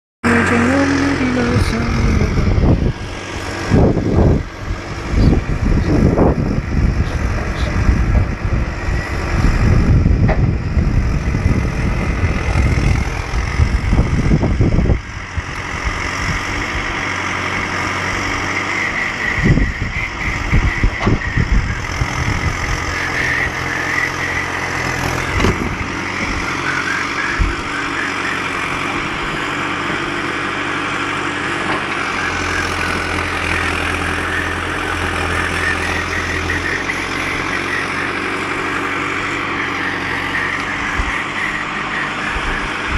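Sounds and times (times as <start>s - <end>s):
diesel engine running: 0.2s - 42.9s.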